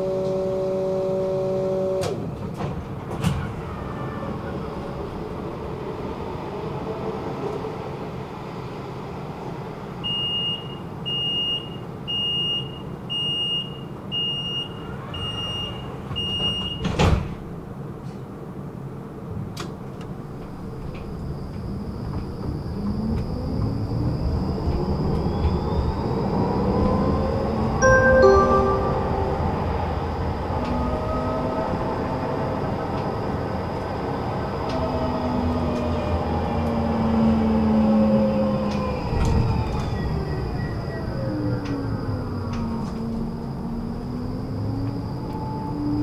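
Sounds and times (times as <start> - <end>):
tram electric drive whine: 0.0 - 10.0, 17.6 - 46.0
door warning beeps: 10.1 - 16.9
sliding doors shutting thump: 16.4 - 17.4.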